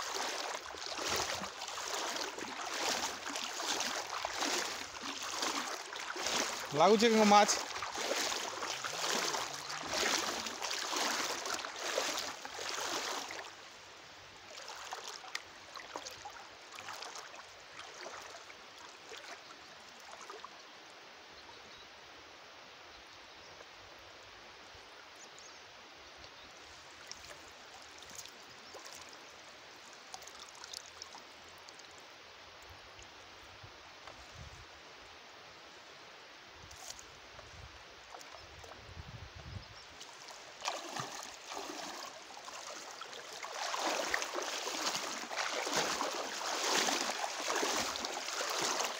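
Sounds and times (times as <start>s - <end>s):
water sloshing: 0.0s - 13.6s, 14.5s - 19.4s, 40.0s - 48.9s
water trickling and dripping: 0.0s - 13.6s, 14.5s - 20.5s, 26.2s - 33.2s, 40.0s - 48.9s.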